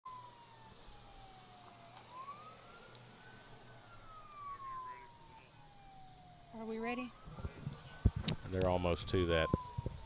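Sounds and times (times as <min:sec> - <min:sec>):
faint siren wailing: 0:00.1 - 0:10.0.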